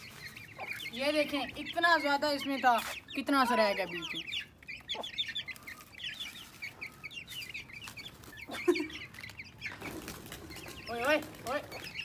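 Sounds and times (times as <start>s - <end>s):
chicks peeping: 0.0s - 12.0s.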